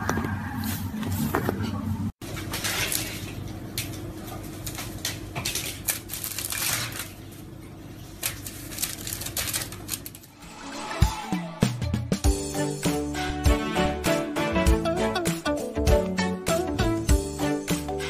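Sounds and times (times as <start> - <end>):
aluminium foil crinkling: 2.4 - 10.4.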